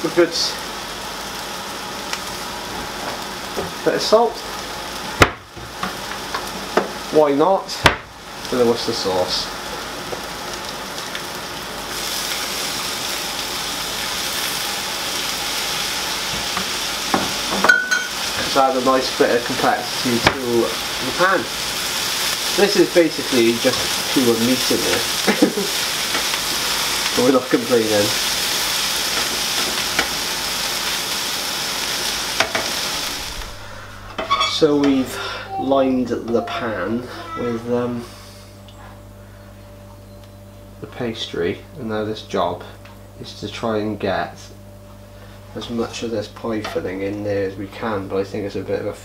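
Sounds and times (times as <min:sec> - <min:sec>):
meat and vegetables sizzling in pan: 0:00.0 - 0:34.5.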